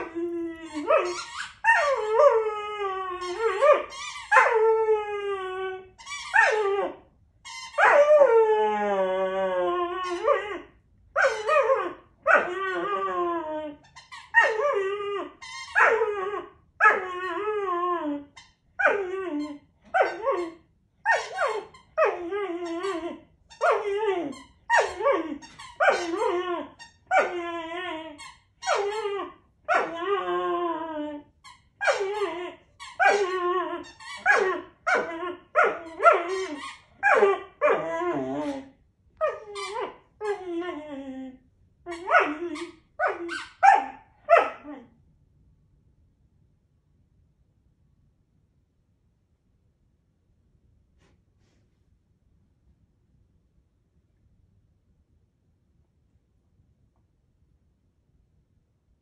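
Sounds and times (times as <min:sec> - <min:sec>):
puppy whining: 0:00.0 - 0:45.0.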